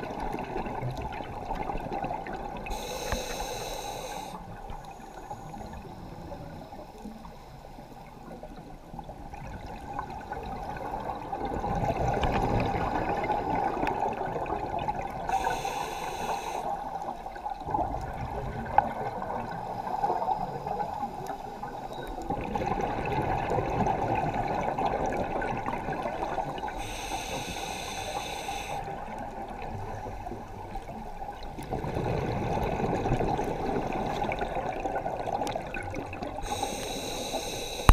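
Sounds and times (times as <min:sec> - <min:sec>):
regulator inhale hiss: 0:02.6 - 0:08.0, 0:15.3 - 0:17.0, 0:26.6 - 0:29.1, 0:36.4 - 0:37.9
exhaled bubbles rushing: 0:22.3 - 0:26.6, 0:31.5 - 0:36.5.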